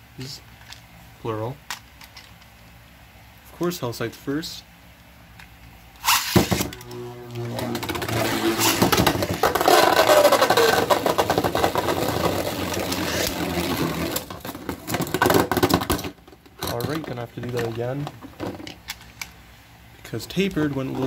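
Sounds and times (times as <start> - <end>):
spinning tops clacking together: 6.0 - 6.9, 7.7 - 14.2
falling whine: 6.0 - 14.4
spinning tops whirring: 6.0 - 14.4.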